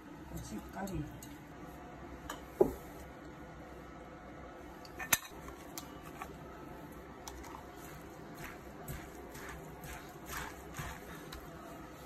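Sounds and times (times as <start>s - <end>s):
soft squishing rustles: 5.5s - 12.0s.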